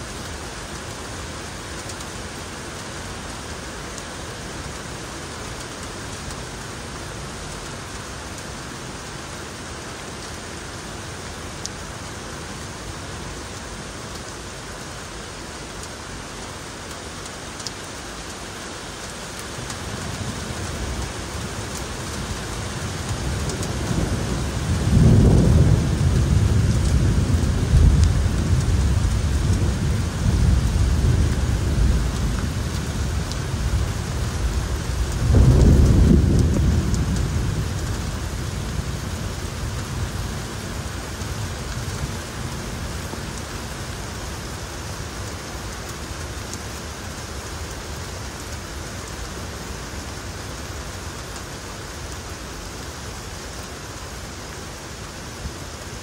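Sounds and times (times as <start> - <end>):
steady rain: 0.0 - 56.0
thunder rumbling: 23.0 - 40.2.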